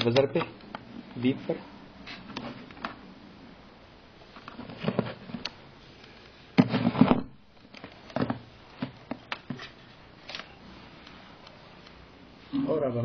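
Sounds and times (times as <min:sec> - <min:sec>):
handling knocks and rustles: 0:04.3 - 0:05.5.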